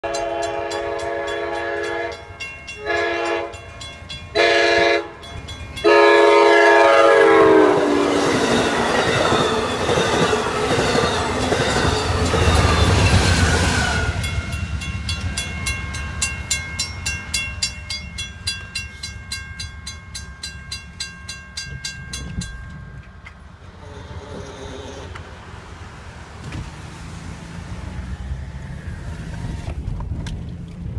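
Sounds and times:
train horn blasts: 0:00.0 - 0:03.7, 0:04.3 - 0:09.3
crossing bells ringing: 0:00.0 - 0:23.8
passing train rushing: 0:00.0 - 0:30.9.

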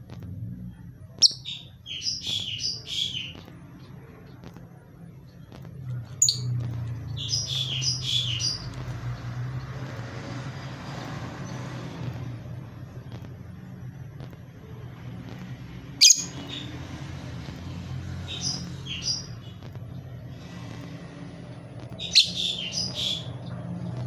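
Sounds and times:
bird chirping: 0:01.2 - 0:04.5, 0:05.2 - 0:09.8, 0:15.9 - 0:16.9, 0:18.0 - 0:20.1, 0:21.8 - 0:24.0.

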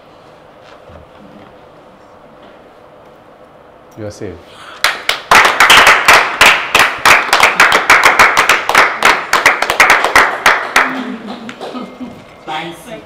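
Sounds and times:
people clapping: 0:04.8 - 0:11.9.

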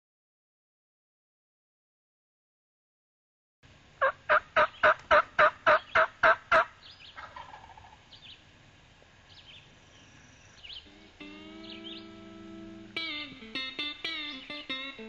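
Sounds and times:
turkey yelps: 0:04.0 - 0:08.0
faint songbird chirps: 0:06.8 - 0:08.5, 0:09.2 - 0:15.0.

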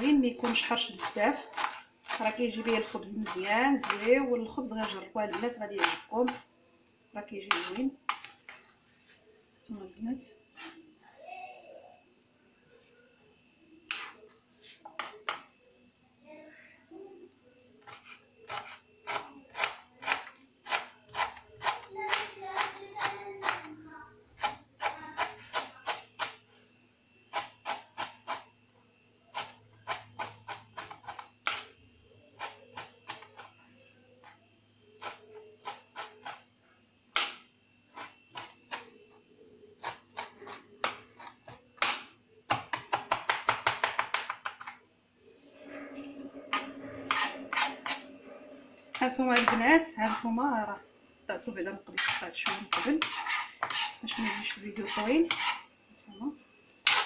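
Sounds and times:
knife chopping on cutting board: 0:52.0 - 0:55.6.

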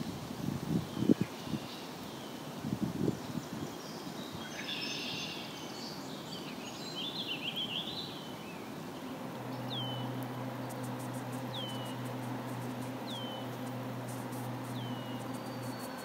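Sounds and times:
birds singing: 0:03.1 - 0:16.0
steady low hum: 0:08.8 - 0:16.0.

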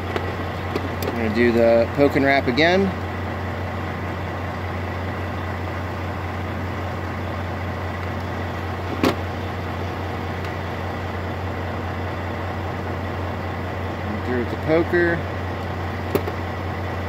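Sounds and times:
diesel truck engine idling: 0:00.0 - 0:17.0.

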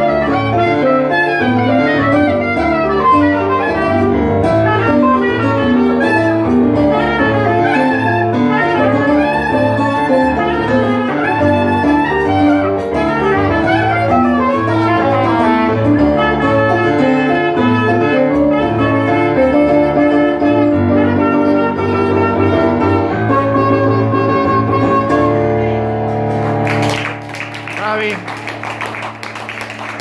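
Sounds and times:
woodwind slow melody: 0:00.0 - 0:25.9
digital piano chords: 0:00.0 - 0:30.0.

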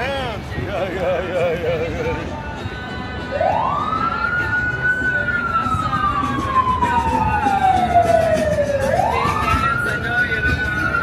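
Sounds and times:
emergency siren wailing: 0:03.2 - 0:11.0.

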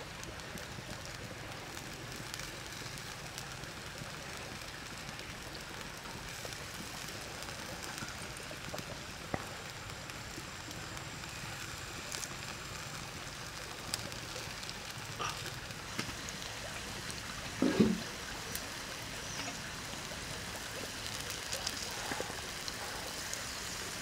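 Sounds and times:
sharp crackles: 0:00.0 - 0:24.0
shrimp sizzling on hot stone: 0:00.0 - 0:24.0.

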